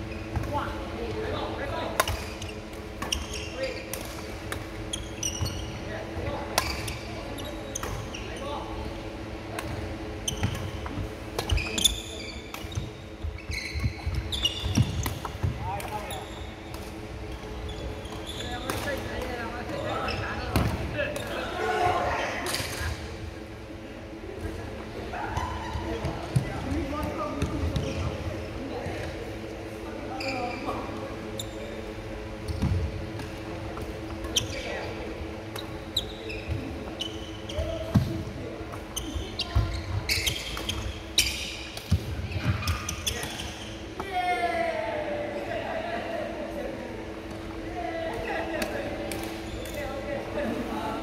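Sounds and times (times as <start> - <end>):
steady hall hum: 0.0 - 51.0
shoes squeaking on floor: 2.2 - 3.9, 4.9 - 5.8, 11.4 - 16.6, 17.3 - 18.7, 38.9 - 41.7, 42.3 - 43.9.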